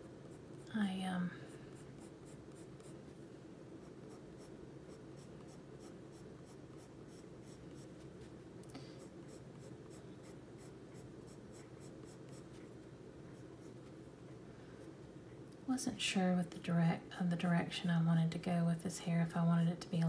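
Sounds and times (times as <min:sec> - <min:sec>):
pencil scratching on paper: 0:01.7 - 0:03.0, 0:03.8 - 0:08.1, 0:09.0 - 0:12.8.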